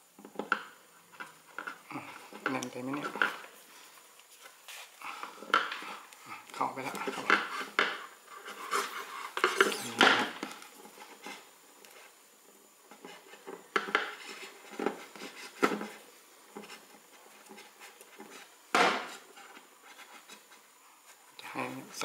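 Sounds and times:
wires and metal lamp handled: 1.2s - 3.5s.

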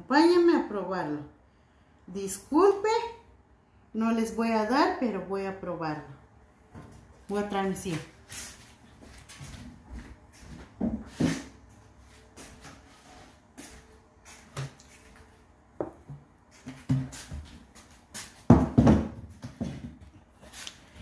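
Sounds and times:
objects knocking and bumping: 18.4s - 20.2s.

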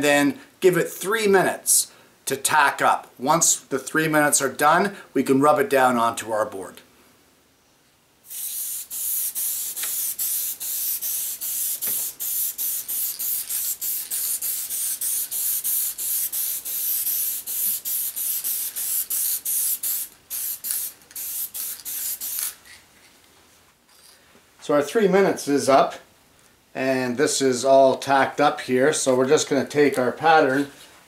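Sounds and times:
aerosol spray can hissing: 8.2s - 22.6s.

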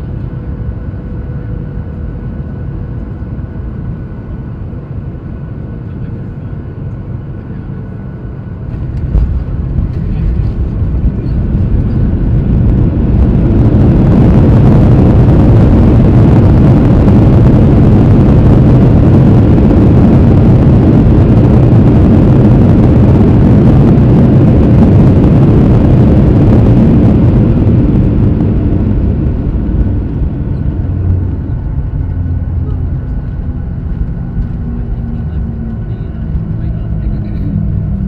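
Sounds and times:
airliner cabin rumble: 0.0s - 38.0s.

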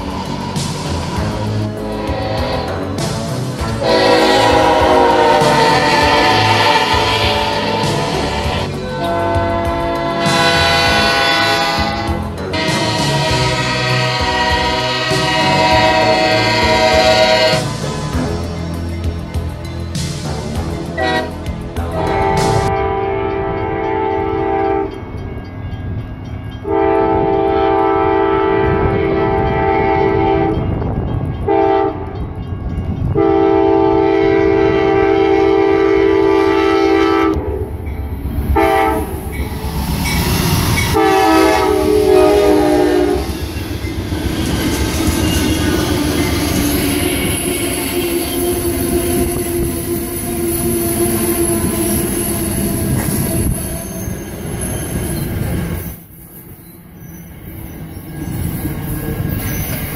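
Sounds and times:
rail-joint clatter: 0.0s - 33.4s, 37.3s - 59.9s
locomotive air horn blasts: 1.8s - 3.0s, 3.6s - 17.8s, 20.9s - 21.4s, 22.0s - 25.0s, 26.6s - 30.6s, 31.5s - 32.2s, 33.2s - 37.6s, 38.6s - 39.2s, 40.8s - 43.4s, 46.7s - 53.6s
train wheels squealing: 43.2s - 59.9s.

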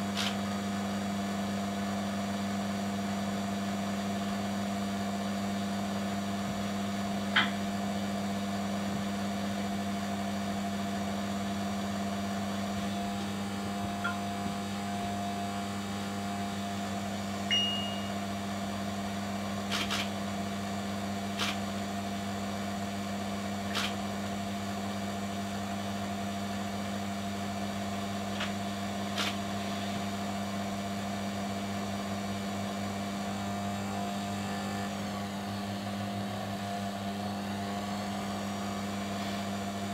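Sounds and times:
small electric motor humming: 32.4s - 39.9s.

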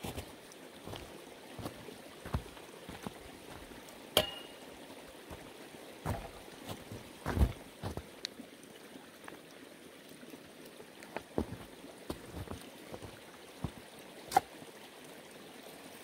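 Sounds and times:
sharp metallic clink: 4.2s - 4.6s.

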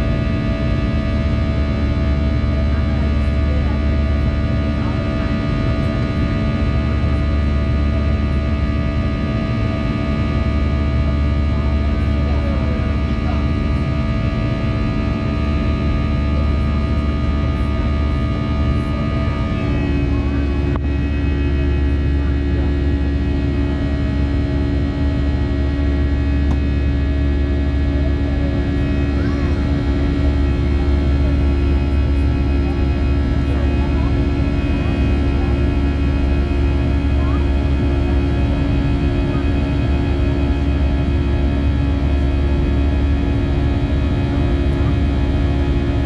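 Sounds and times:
jet engine buzzsaw roar: 0.0s - 46.0s.

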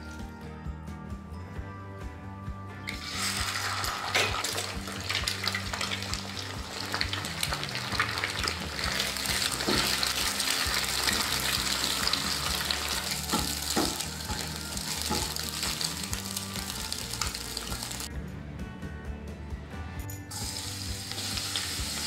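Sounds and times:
eggs sizzling in oil: 2.9s - 18.1s, 20.4s - 22.0s
spatula scraping and tapping pan: 8.0s - 16.2s.

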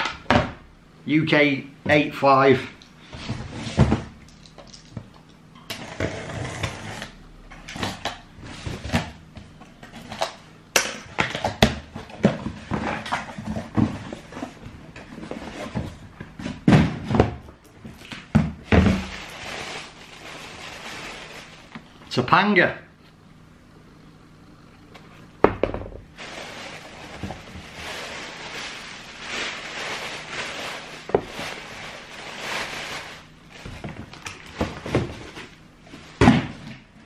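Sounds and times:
handling knocks and rustles: 7.6s - 22.0s.

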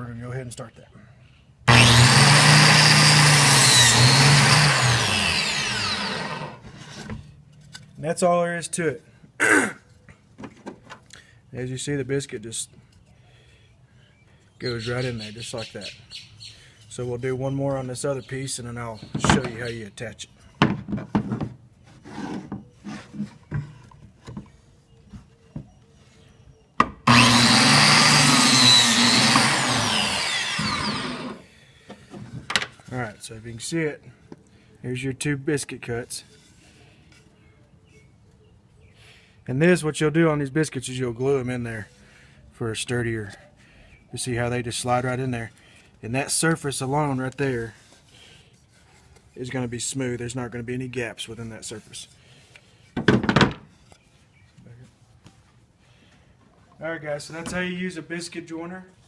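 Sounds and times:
biscuit joiner cutting wood: 1.7s - 7.2s, 21.9s - 23.4s, 26.9s - 31.4s.

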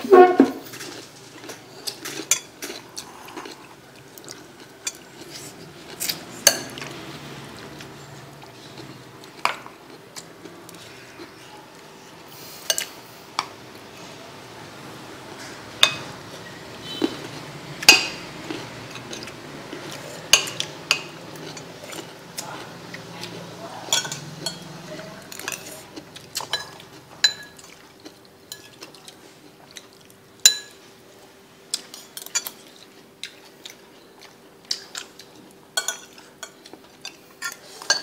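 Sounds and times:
spoon clinking on ceramic bowls: 23.9s - 24.7s, 26.4s - 27.7s.

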